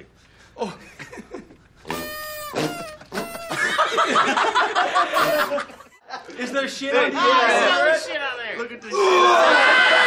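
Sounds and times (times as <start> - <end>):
man farting: 1.8 - 3.7, 5.2 - 5.6
men laughing and shouting: 9.0 - 10.0.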